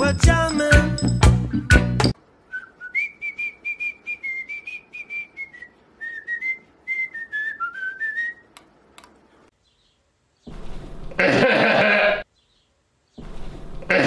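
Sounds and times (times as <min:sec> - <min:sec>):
cockatiel whistling: 0:02.5 - 0:08.5.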